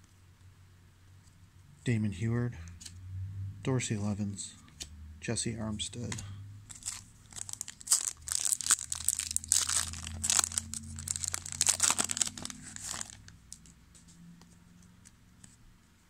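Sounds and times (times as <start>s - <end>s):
foil wrapper crinkling and tearing: 6.7s - 13.7s.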